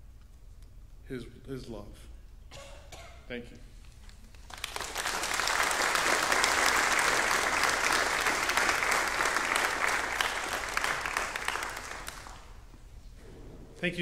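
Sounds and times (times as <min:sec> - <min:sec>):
congregation applauding: 0:04.2 - 0:12.9.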